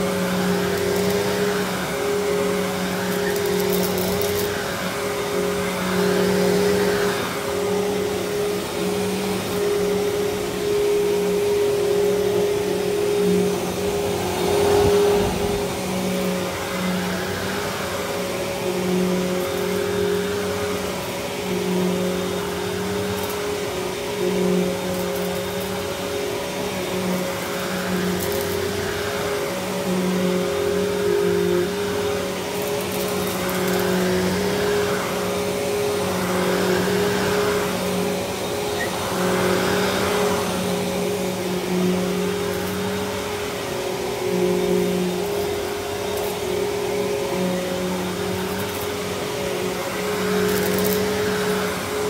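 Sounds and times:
vacuum cleaner on carpet: 0:00.0 - 0:52.0.

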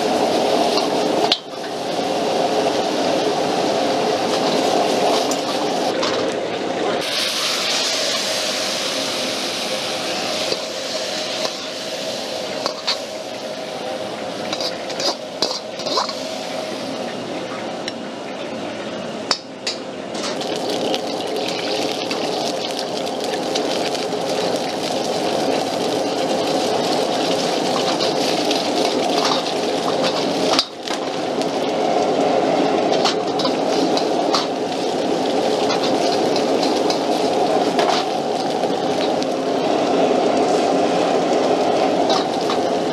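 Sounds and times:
food sizzling in oil: 0:00.0 - 0:06.0, 0:07.0 - 0:17.1, 0:20.2 - 0:42.9
gas burner rushing: 0:00.0 - 0:18.0, 0:19.3 - 0:42.9
ladle scraping a wok: 0:14.5 - 0:16.3.

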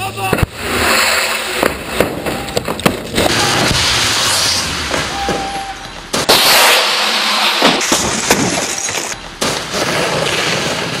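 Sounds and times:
car body crashing on road: 0:00.4 - 0:11.0
glass breaking: 0:06.1 - 0:10.9.

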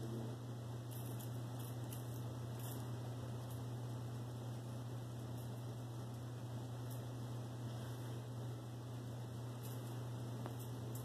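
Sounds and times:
soft ticks and rustles: 0:09.6 - 0:11.0.

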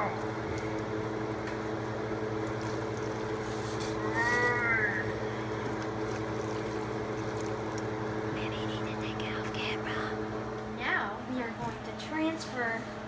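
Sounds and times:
low mechanical hum: 0:00.0 - 0:13.0
rising and falling whine: 0:03.7 - 0:05.9
spoon stirring thick mixture: 0:05.4 - 0:08.1.

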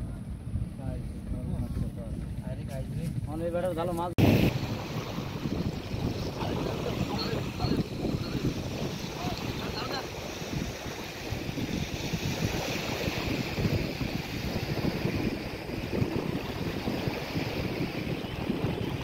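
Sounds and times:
wind buffeting microphone: 0:00.0 - 0:19.0
small waves lapping: 0:04.2 - 0:19.0.

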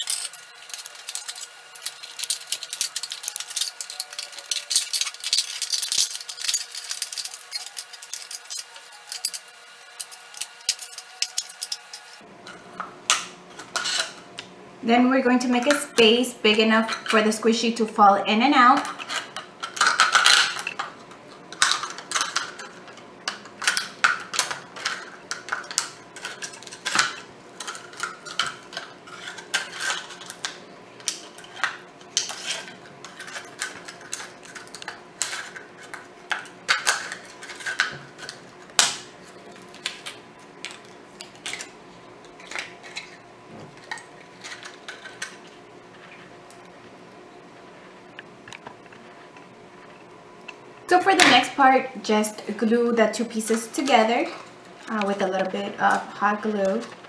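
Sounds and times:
plastic crackling: 0:00.0 - 0:12.2.

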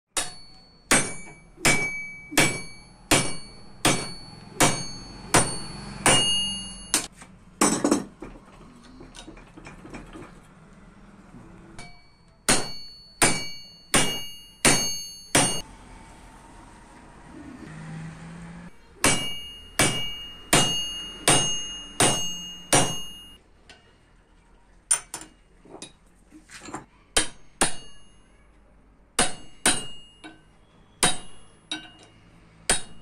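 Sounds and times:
hammer ringing on steel rod: 0:00.2 - 0:07.1, 0:11.8 - 0:15.6, 0:19.0 - 0:23.4, 0:27.2 - 0:28.2, 0:29.2 - 0:33.0.

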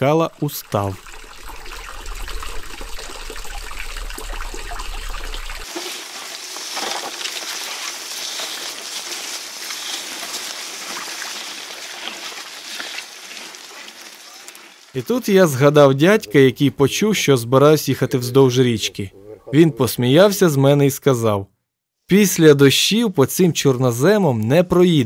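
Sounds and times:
water trickling through sluice: 0:00.0 - 0:16.5
bicycle tyres rolling on leaves: 0:01.1 - 0:16.0.

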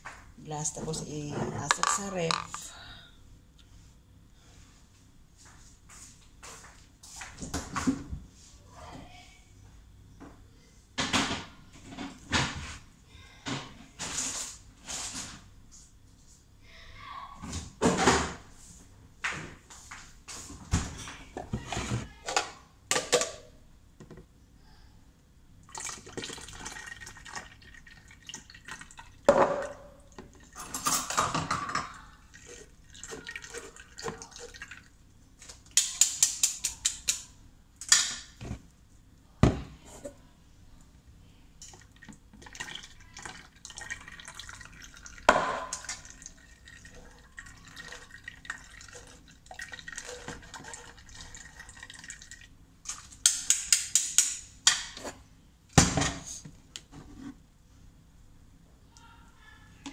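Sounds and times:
juice dripping through strainer: 0:25.6 - 0:29.3, 0:32.0 - 0:36.0, 0:41.6 - 0:53.7.

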